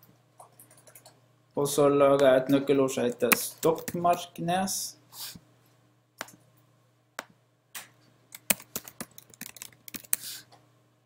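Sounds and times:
computer keyboard typing: 0.4 - 1.2, 8.4 - 10.3.

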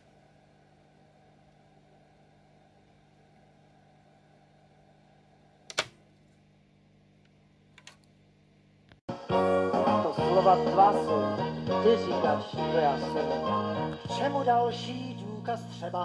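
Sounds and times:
faint low hum: 0.0 - 9.0.

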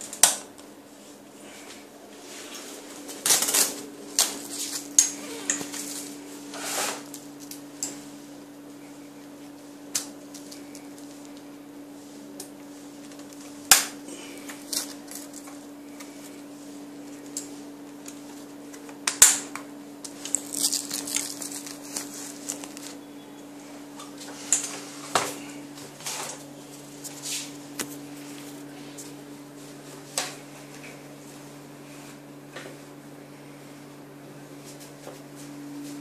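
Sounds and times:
steady low hum: 0.0 - 36.0
velcro and fabric rustling: 20.2 - 23.0.

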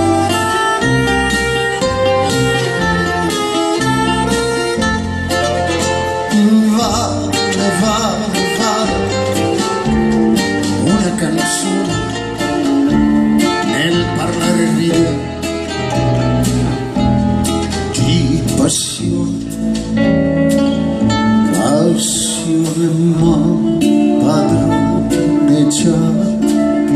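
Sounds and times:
electric guitar: 0.0 - 26.9
live band playing: 0.0 - 26.9
man singing: 1.4 - 4.8, 5.5 - 15.8, 17.9 - 19.9, 21.4 - 26.9.

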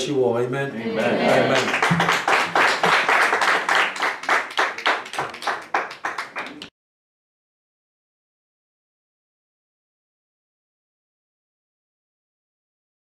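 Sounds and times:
people clapping in rhythm: 1.3 - 6.7.

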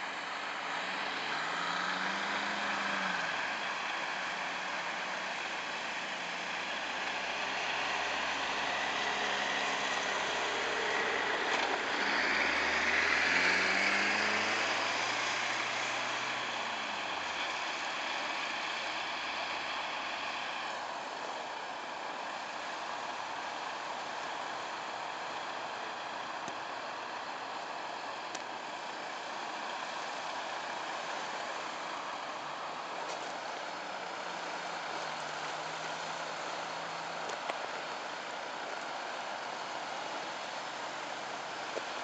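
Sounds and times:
car driving through slush: 0.0 - 42.0
tyres hissing on wet snow: 0.1 - 42.0.

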